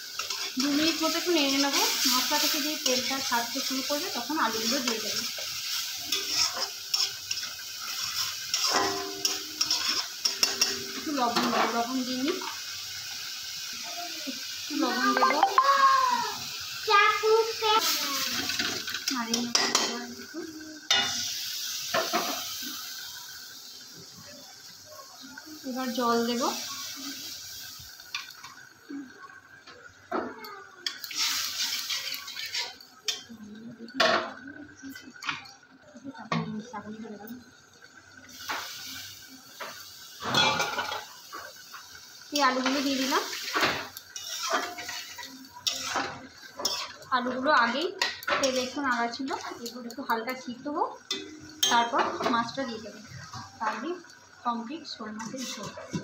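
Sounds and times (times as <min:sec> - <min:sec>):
metal spatula scraping a pan: 0:00.0 - 0:12.5, 0:30.8 - 0:33.2, 0:40.2 - 0:41.1, 0:42.6 - 0:47.1, 0:55.2 - 0:56.0
paste sizzling in oil: 0:00.0 - 0:56.0.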